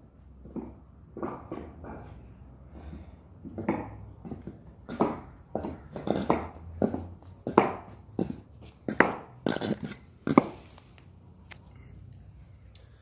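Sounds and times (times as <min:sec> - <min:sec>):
wooden shoes clopping on concrete: 0:00.4 - 0:10.6.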